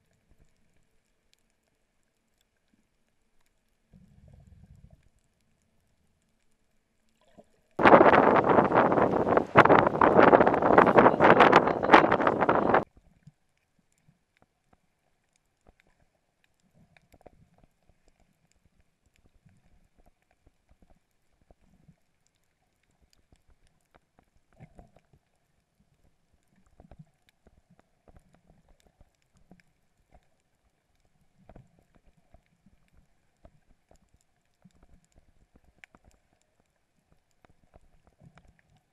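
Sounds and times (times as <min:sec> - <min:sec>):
faint clicks underwater: 0:00.0 - 0:38.9
soft low bumps: 0:07.8 - 0:12.8.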